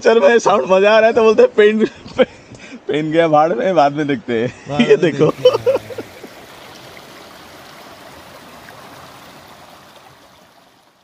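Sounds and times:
stream rushing water: 0:05.2 - 0:11.0.

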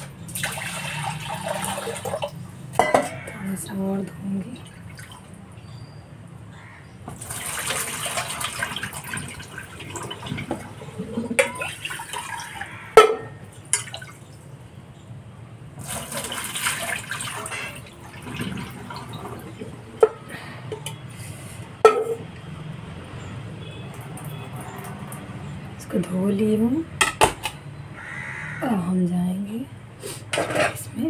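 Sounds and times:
water pouring between pots: 0:00.3 - 0:03.2, 0:07.1 - 0:14.4, 0:15.8 - 0:20.2
steel pots clinking: 0:00.8 - 0:03.6, 0:07.8 - 0:14.0, 0:17.0 - 0:21.1.

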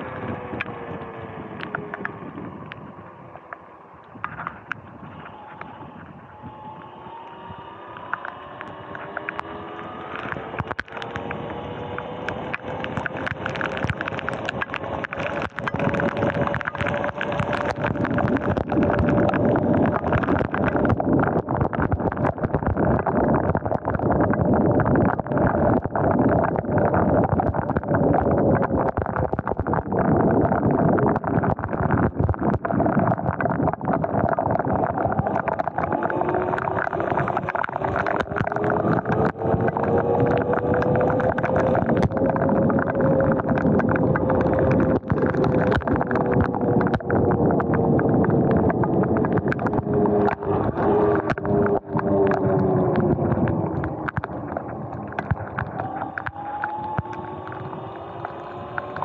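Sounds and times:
wind: 0:00.0 - 0:25.0, 0:34.0 - 0:59.0
electric motorbike motor whining: 0:05.0 - 0:13.0
rain and spray crackling: 0:06.3 - 0:59.0.

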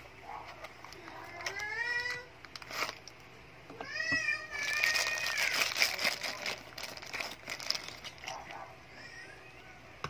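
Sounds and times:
plastic bag crinkling: 0:00.4 - 0:03.2, 0:04.5 - 0:08.6.

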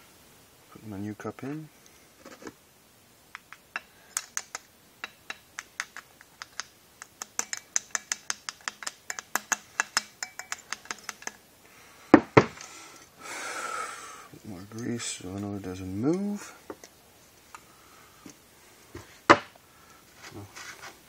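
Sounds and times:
rapid light tapping on metal: 0:03.3 - 0:11.4.

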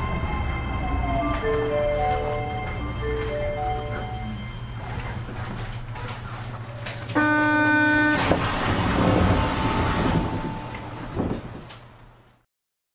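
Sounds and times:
rubber-tyred train rushing: 0:00.0 - 0:12.2
train horn: 0:07.1 - 0:11.0.

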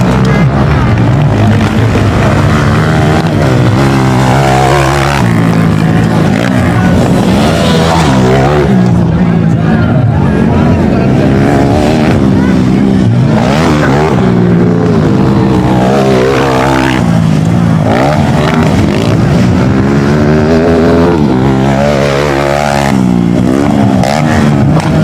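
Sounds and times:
motorcycle engines revving: 0:00.0 - 0:25.0.

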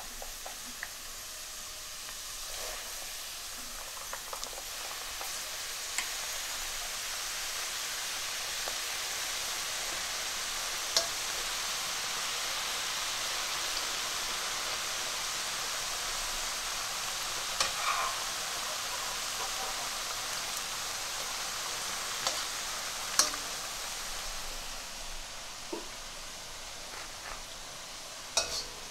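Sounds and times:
dough deep-frying in hot oil: 0:00.0 - 0:28.9
metal spoon knocking a wok: 0:28.4 - 0:28.8.

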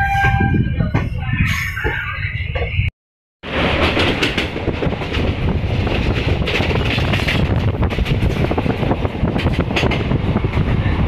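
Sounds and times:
train coach rumble: 0:00.0 - 0:11.0
train wheels clicking on rails: 0:03.5 - 0:10.8.

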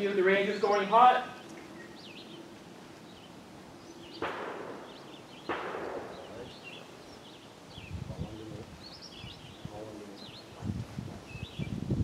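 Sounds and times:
gunshots with echo: 0:04.2 - 0:06.6.

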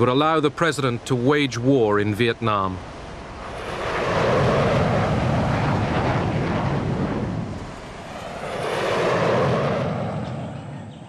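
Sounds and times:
jet engine rushing noise: 0:02.8 - 0:11.0.

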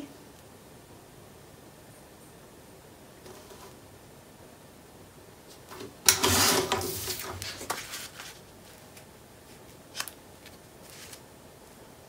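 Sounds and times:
cardstock rustling and sliding: 0:05.5 - 0:11.2.

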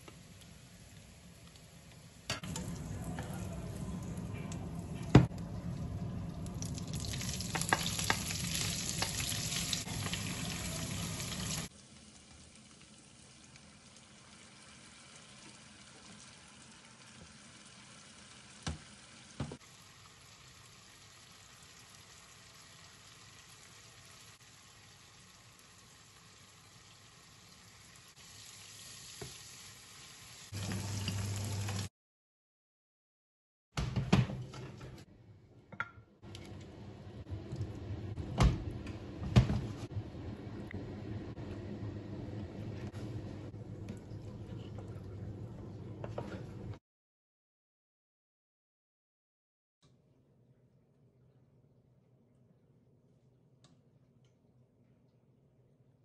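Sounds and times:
vegetables sizzling in oil: 0:06.9 - 0:31.9.

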